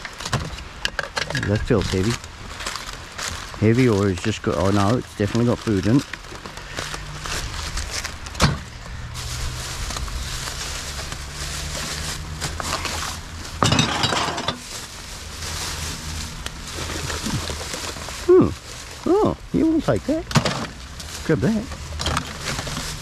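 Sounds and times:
plastic bag rustling: 0.0s - 23.0s
bottles and cans clinking: 13.6s - 14.6s.

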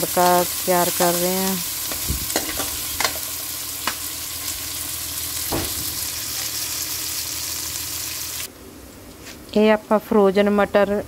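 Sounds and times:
onions sizzling in hot oil: 0.0s - 8.5s.

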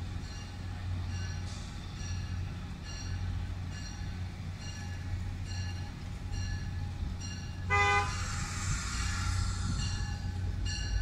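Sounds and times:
train rumbling: 0.0s - 11.0s
train horn chord: 7.7s - 8.3s.

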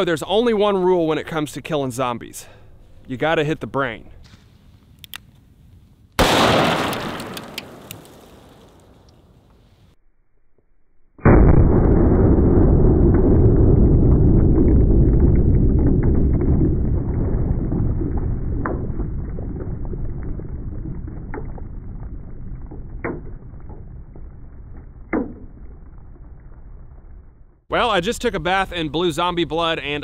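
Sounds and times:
slowed gunshot boom: 6.2s - 9.1s, 11.2s - 27.6s
short sharp cracks: 6.2s - 9.6s.

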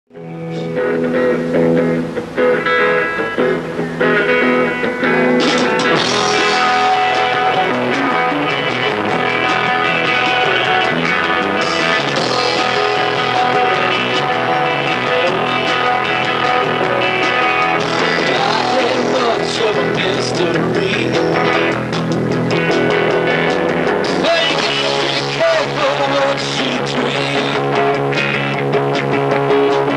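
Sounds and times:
electric guitar notes: 0.1s - 29.9s
live rock band playing: 0.1s - 29.9s
drums with cymbals: 5.4s - 20.1s.

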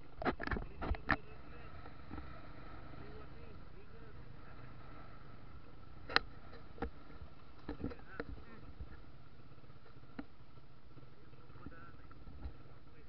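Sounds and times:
sharp clicks and knocks: 0.0s - 2.3s, 6.0s - 9.0s
motorcycle engine rumble: 0.0s - 13.0s.

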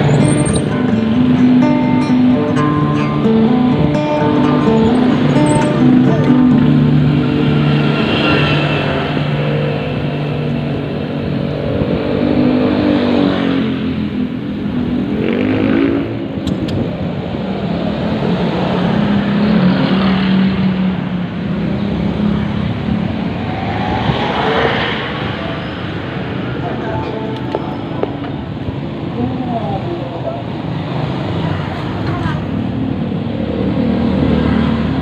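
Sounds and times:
motorcycles passing: 0.0s - 35.0s.

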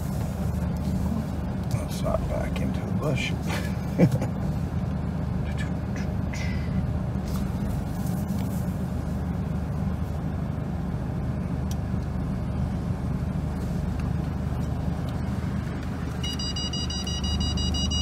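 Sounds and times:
car interior low rumble: 0.0s - 18.0s
rapid electronic warning beep: 16.2s - 18.0s.

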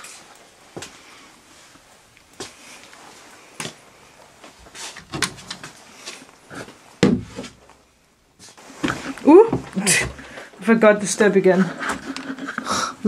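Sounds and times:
wooden cupboards and drawers clattering: 4.9s - 5.8s
heavy thump: 7.0s - 7.6s.

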